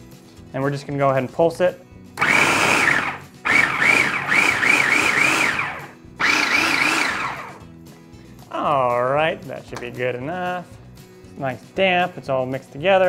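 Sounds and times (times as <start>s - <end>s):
food processor motor whining: 2.2s - 7.6s.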